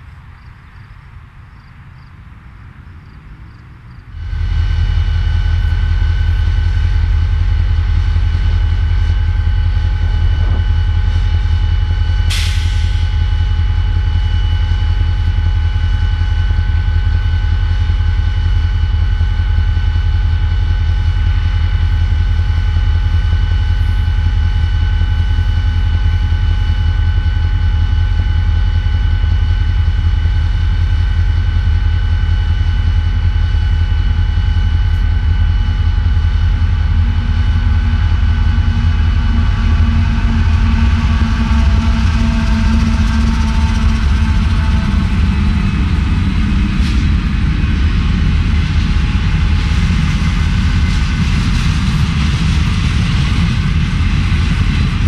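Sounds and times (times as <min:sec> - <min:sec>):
locomotive engine droning: 0:00.0 - 0:55.0.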